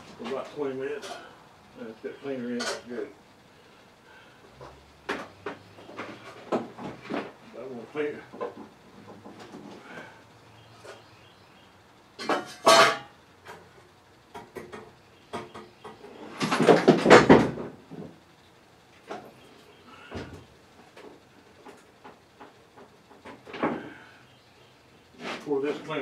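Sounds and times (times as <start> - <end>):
objects clattering: 16.2 - 18.1.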